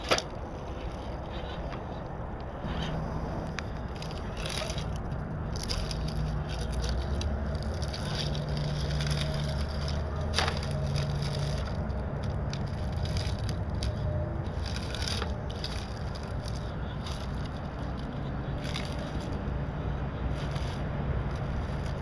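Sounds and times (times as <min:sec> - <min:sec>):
pebbles clicking: 0:03.4 - 0:19.6
tyres crunching on stone: 0:03.7 - 0:19.5.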